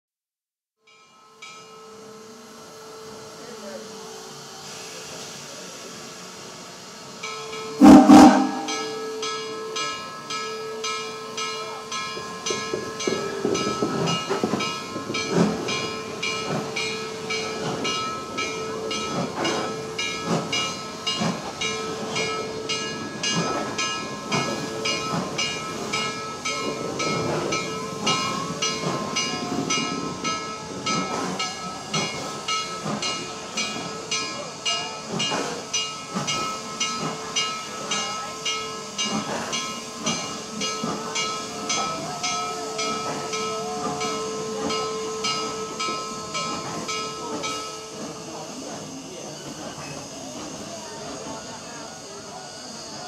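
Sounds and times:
steam locomotive hissing: 1.0s - 53.0s
loud whistle blast: 7.8s - 9.0s.

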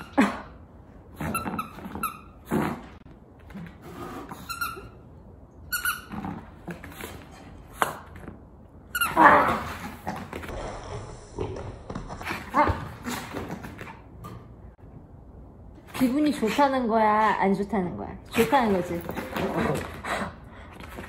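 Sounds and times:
squeaky toy squeaks: 5.7s - 6.4s.

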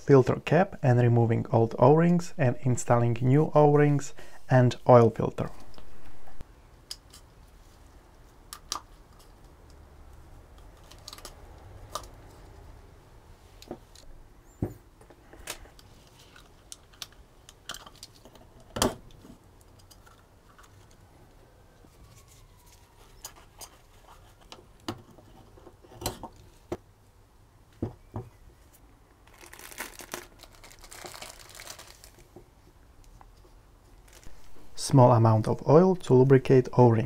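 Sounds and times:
plastic packet crinkling: 29.3s - 32.3s.

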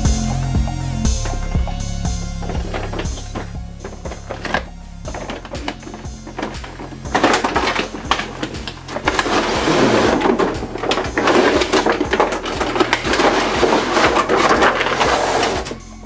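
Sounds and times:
cardboard and plastic rustling: 2.4s - 16.0s.

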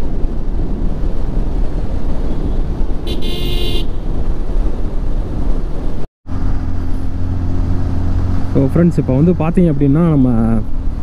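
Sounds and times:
wind and road rumble: 0.0s - 11.0s
vehicle horn honking: 3.1s - 4.0s
engine drone: 6.3s - 11.0s.

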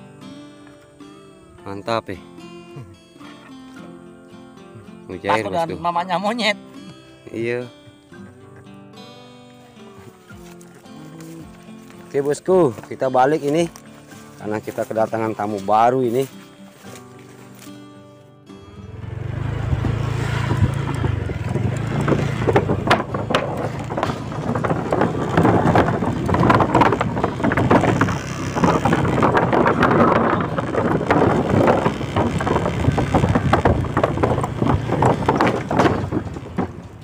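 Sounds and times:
small engine running: 18.6s - 37.0s
wind buffeting microphone: 19.1s - 37.0s
wooden boards clattering: 20.5s - 37.0s.

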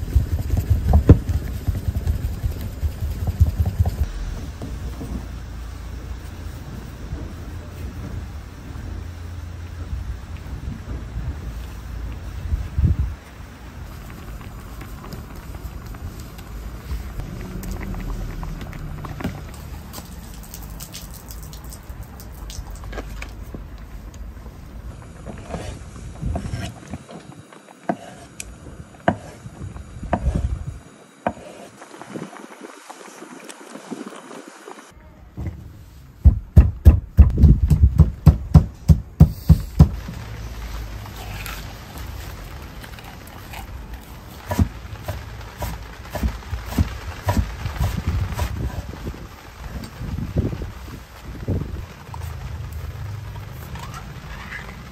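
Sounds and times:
low rumble: 0.0s - 26.9s
low steady hiss: 0.0s - 54.9s.

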